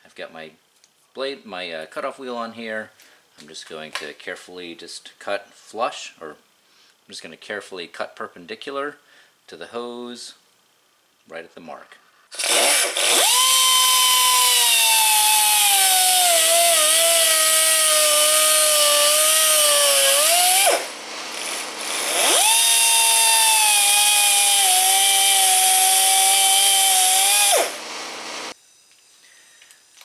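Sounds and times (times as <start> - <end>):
die grinder cutting hose: 12.3 - 28.6.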